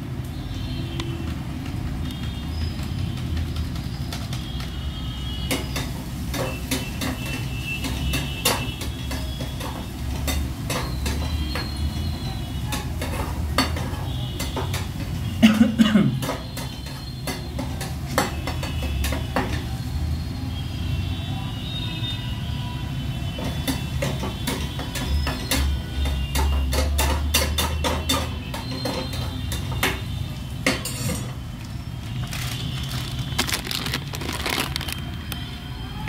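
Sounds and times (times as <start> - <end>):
metal spatula scraping pan: 23.5 - 31.4.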